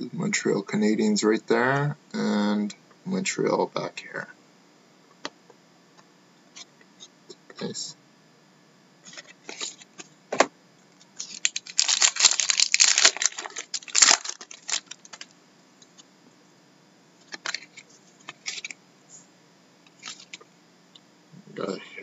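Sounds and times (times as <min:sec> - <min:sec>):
cards being shuffled: 0:11.2 - 0:15.3, 0:17.2 - 0:18.8, 0:19.9 - 0:20.4.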